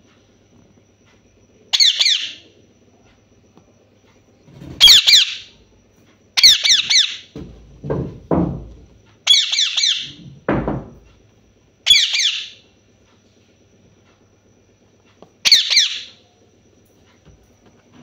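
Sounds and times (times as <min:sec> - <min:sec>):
parakeet screeching: 0:01.7 - 0:02.4, 0:04.8 - 0:05.5, 0:06.4 - 0:07.3, 0:09.2 - 0:10.2, 0:11.8 - 0:12.6, 0:15.4 - 0:16.2.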